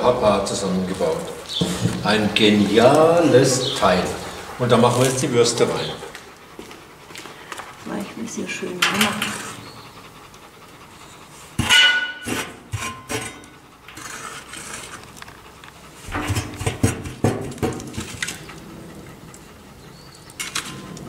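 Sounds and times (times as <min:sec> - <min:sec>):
metal clanking and scraping: 0:08.8 - 0:09.7, 0:11.6 - 0:15.3, 0:16.0 - 0:18.6, 0:20.4 - 0:21.0.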